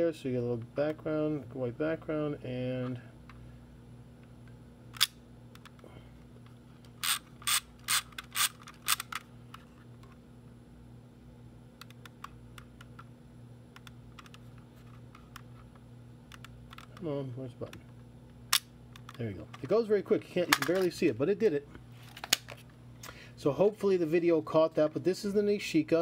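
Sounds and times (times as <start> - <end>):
steady low hum: 0.0 - 26.0
camera mechanism clicking: 7.0 - 9.2.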